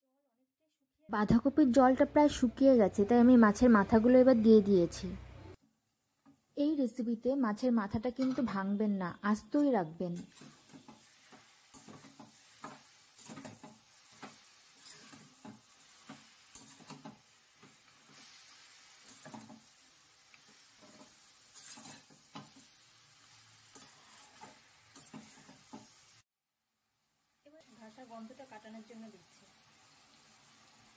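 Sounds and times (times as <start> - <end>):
faint sizzle: 1.1 - 30.9
metal spatula scraping pan: 8.1 - 8.6, 10.2 - 19.7, 20.4 - 22.7, 23.6 - 26.0.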